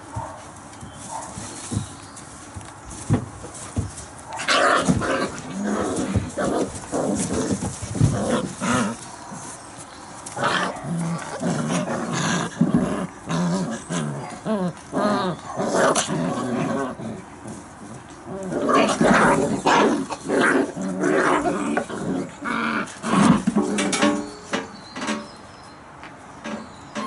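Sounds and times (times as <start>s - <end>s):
puppies growling and squealing: 4.4s - 9.6s, 10.3s - 17.4s, 18.3s - 23.9s.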